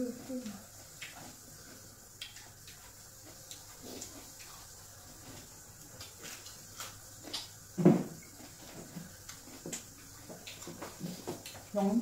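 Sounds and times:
people eating with hands: 0.0s - 12.0s
loud thump: 7.8s - 8.1s.

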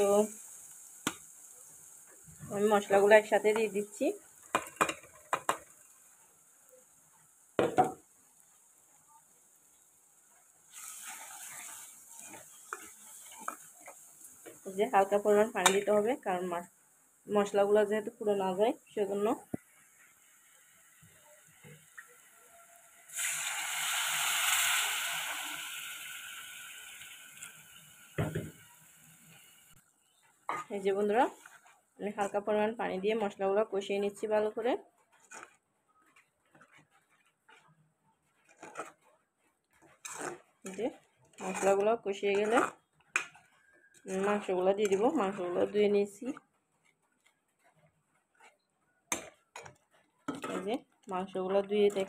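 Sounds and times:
water splashing into hot oil: 0.0s - 3.8s, 10.6s - 14.8s, 22.9s - 29.7s
loud sizzling hiss: 0.0s - 4.0s, 22.6s - 29.8s
onion sizzling in hot oil: 0.0s - 39.0s, 39.7s - 46.4s, 49.1s - 52.0s
spoon stirring in metal pot: 2.1s - 6.3s, 10.7s - 16.1s, 30.1s - 32.8s, 33.8s - 52.0s.

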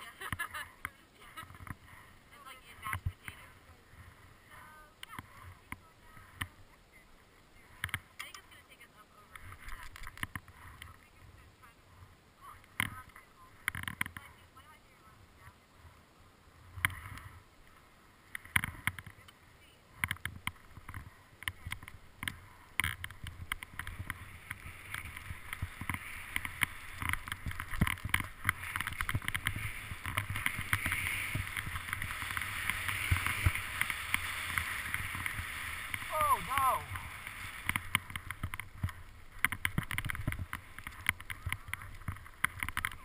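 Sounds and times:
skis scraping through snow: 20.3s - 43.0s.

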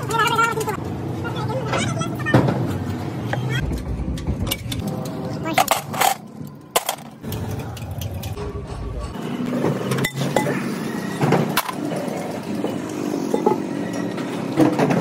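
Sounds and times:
hum of engines and traffic: 0.0s - 15.0s.

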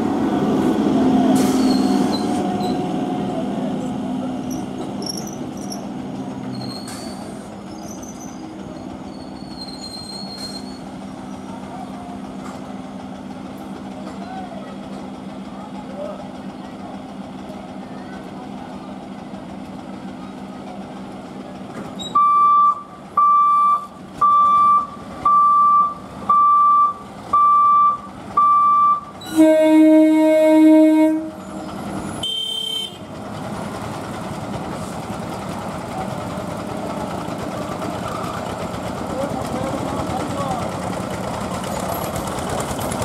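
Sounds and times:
rumble of traffic: 0.0s - 43.0s
electronic vehicle beeper: 22.0s - 29.1s
loud horn blast: 29.3s - 31.4s.

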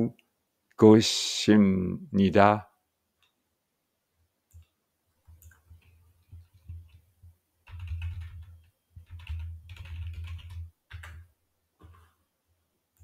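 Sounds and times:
computer keyboard typing: 4.5s - 12.2s.

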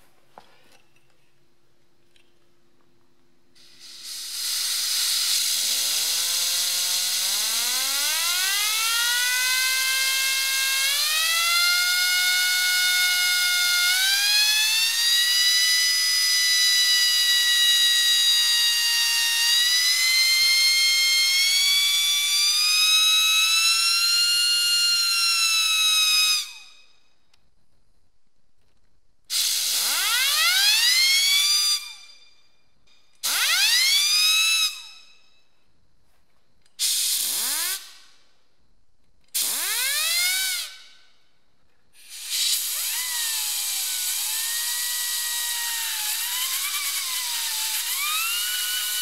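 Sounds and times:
compressed air hissing: 3.6s - 7.3s, 29.3s - 29.9s, 36.8s - 38.1s, 42.0s - 48.2s
turbine whine: 3.6s - 11.2s, 42.0s - 49.0s.

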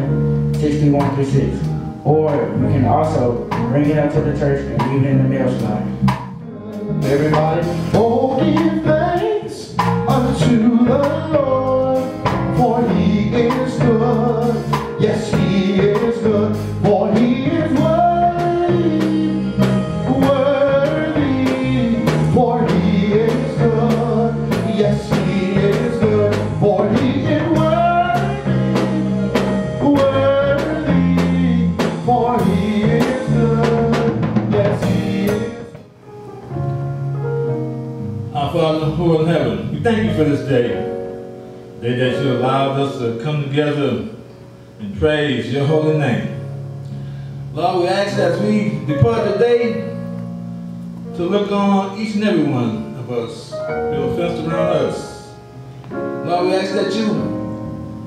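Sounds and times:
drum kit beat: 0.0s - 37.7s
piano: 0.0s - 58.0s
man singing into microphone: 6.4s - 35.8s.

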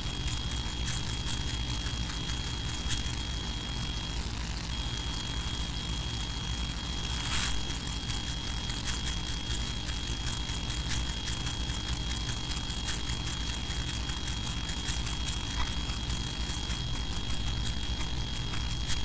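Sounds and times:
thin high whine: 0.0s - 9.3s.

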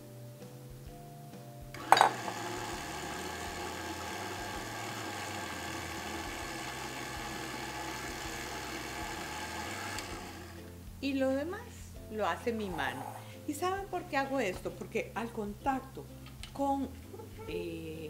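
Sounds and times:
stand mixer motor running: 1.8s - 10.6s.

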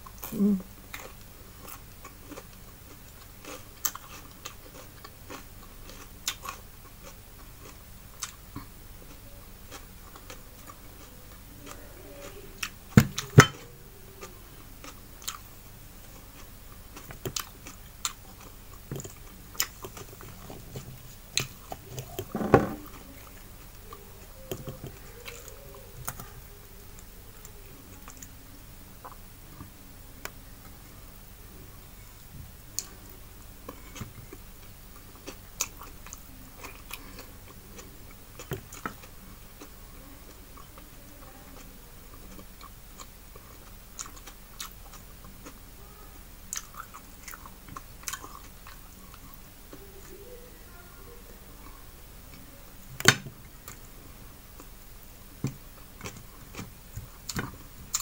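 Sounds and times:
person chewing with wet mouth clicks: 0.0s - 8.7s, 16.1s - 22.2s, 41.6s - 45.6s, 46.5s - 49.8s, 55.4s - 58.0s.

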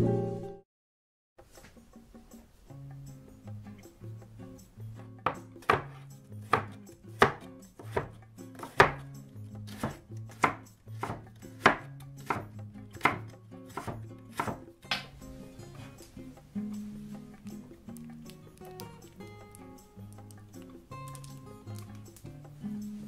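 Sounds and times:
soft music: 0.0s - 0.6s, 1.4s - 23.0s
knife chopping on a cutting board: 5.2s - 15.1s.

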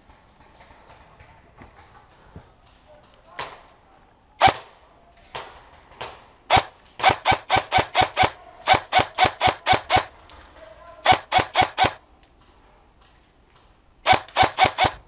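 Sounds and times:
airsoft rifle shots: 3.4s - 3.8s, 4.4s - 10.4s, 11.0s - 12.0s, 14.0s - 15.0s.

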